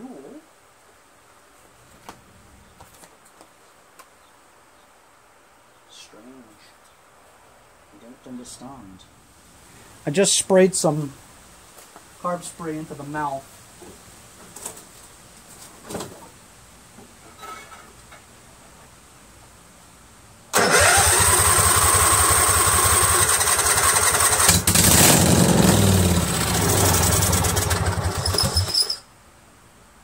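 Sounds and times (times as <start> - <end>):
engine starter cranking: 20.5 - 25.5, 26.4 - 29.0.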